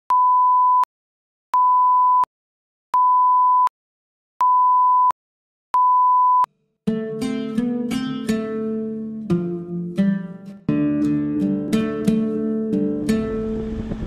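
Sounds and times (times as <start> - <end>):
test tone beeps: 4.4 - 5.2, 5.8 - 6.5.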